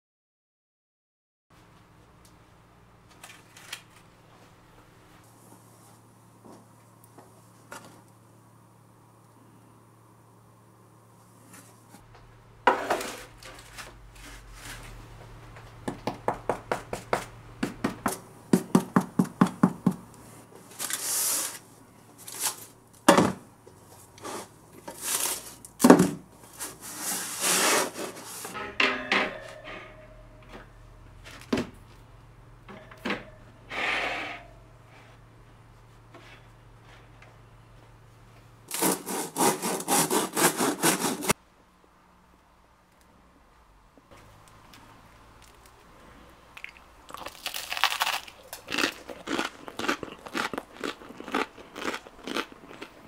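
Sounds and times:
bread crust scraping: 12.7s - 15.0s, 26.4s - 28.6s, 38.7s - 41.4s
bread knife sawing crust: 38.7s - 41.4s.

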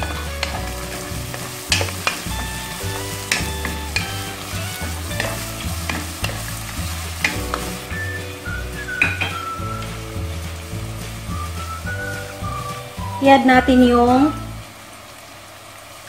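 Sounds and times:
spatula knocking pot: 0.0s - 8.0s, 8.8s - 9.7s
food sizzling in oil: 0.0s - 16.0s.

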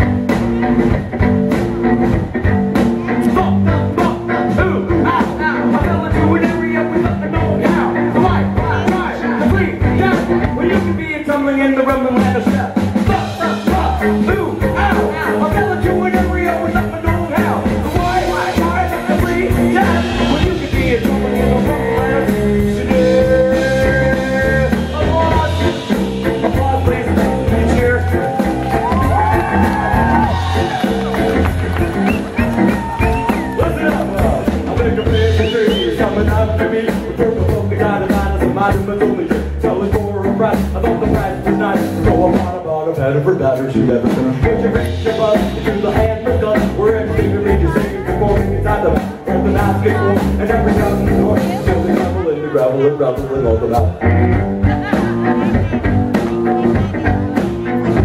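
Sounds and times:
drums: 0.0s - 58.0s
electric bass guitar: 0.0s - 58.0s.

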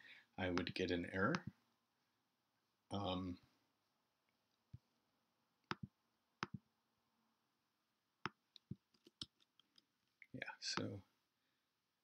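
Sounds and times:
computer mouse clicks: 5.6s - 6.6s.

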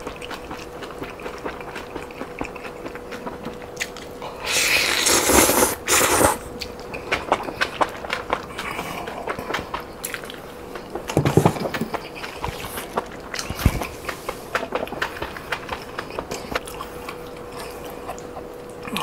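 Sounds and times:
wet chewing: 0.0s - 19.0s
slurping noodles: 4.3s - 6.5s.

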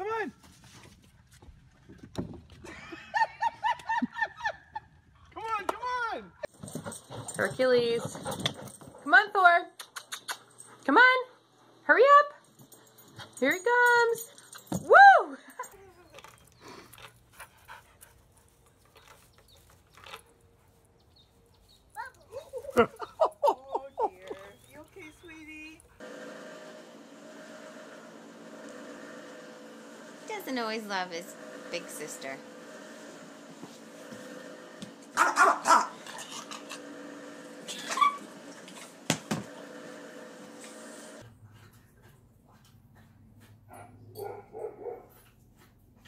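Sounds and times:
dog panting faintly: 17.1s - 18.8s, 41.2s - 43.9s
dog barking: 35.2s - 36.1s, 43.7s - 45.2s.

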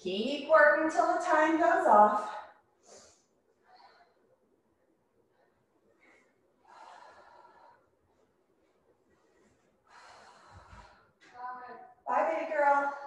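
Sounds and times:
woman breathing hard: 5.5s - 8.3s, 9.1s - 11.4s.

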